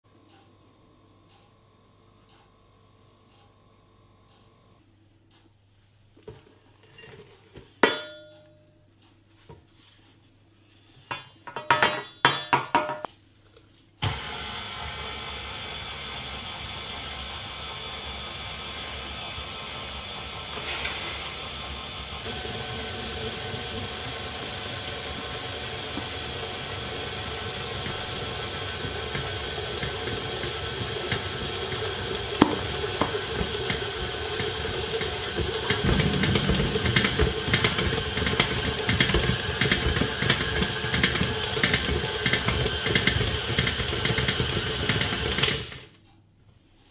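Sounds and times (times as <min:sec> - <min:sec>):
stand mixer motor running: 0:14.0 - 0:45.9.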